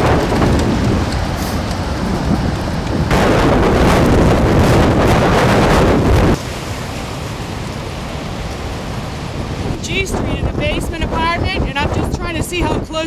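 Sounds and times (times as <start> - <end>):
seawater rushing: 0.0 - 13.0
wind buffeting microphone: 0.0 - 13.0.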